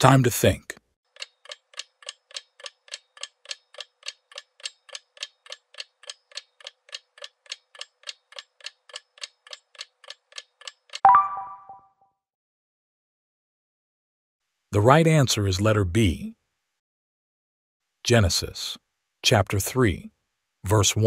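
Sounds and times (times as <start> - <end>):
clock ticking: 1.1 - 11.0
bright ding: 11.1 - 11.8.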